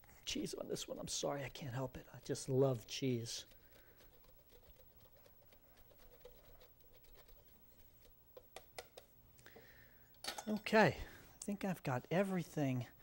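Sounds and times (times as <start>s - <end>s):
hand grater rasping on cheese: 0.8s - 8.1s.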